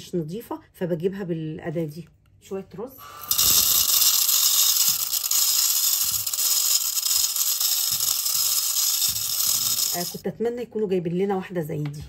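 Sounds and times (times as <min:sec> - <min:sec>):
rice grains rattling: 0:03.3 - 0:10.2.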